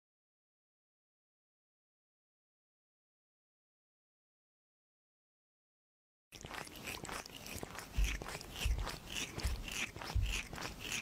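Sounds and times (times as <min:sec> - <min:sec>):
kitten chewing and smacking: 0:06.3 - 0:11.0.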